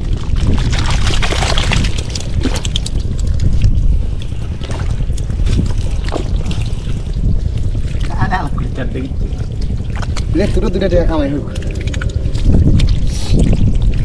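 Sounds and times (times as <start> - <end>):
water splashing and sloshing: 0.0 - 14.0
wind rumble on microphone: 0.0 - 14.0.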